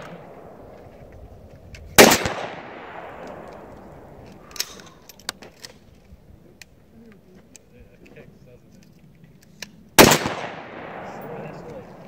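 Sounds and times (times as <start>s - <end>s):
rifle shot echoing: 0.0s - 0.7s, 2.0s - 4.8s, 10.0s - 12.0s.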